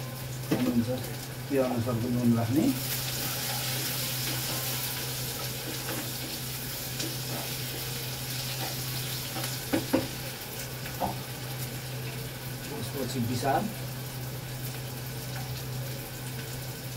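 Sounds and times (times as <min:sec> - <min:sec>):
onions sizzling in oil: 0:00.0 - 0:16.9.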